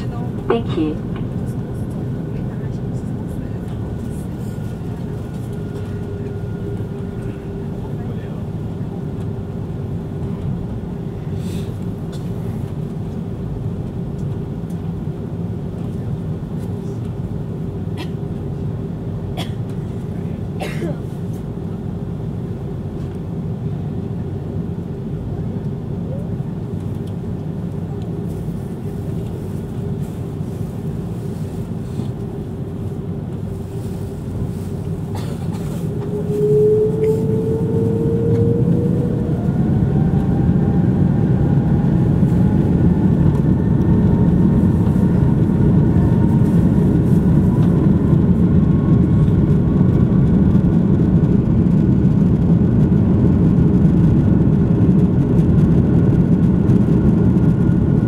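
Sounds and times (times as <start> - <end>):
jet engines spooling up: 29.0 - 58.0.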